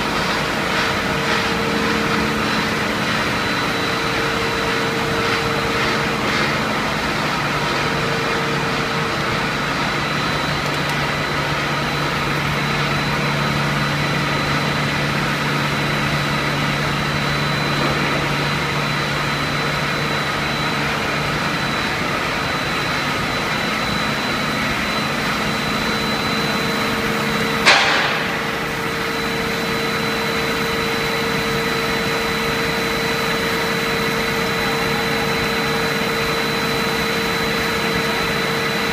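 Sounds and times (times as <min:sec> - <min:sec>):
machine drone with high tone: 0:00.0 - 0:38.9
sharp knock: 0:27.6 - 0:28.4.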